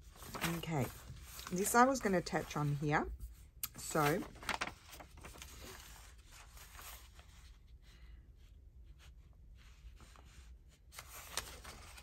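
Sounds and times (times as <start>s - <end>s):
paper rustling: 0.0s - 7.8s, 8.9s - 12.0s.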